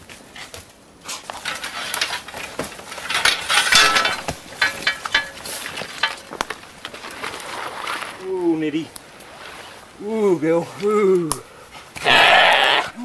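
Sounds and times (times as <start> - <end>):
metal cage trap rattling: 2.9 - 6.4.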